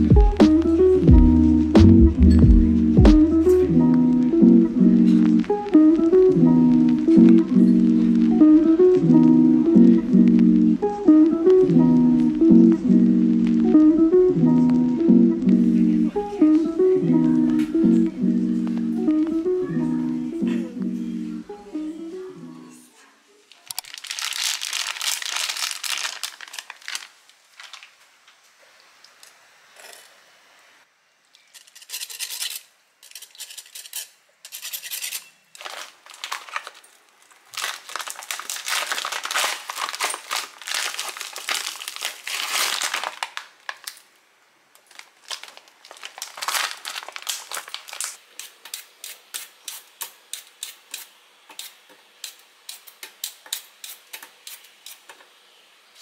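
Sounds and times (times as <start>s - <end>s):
plastic package crinkling and tearing: 23.5s - 28.1s, 35.6s - 44.2s, 44.8s - 48.2s.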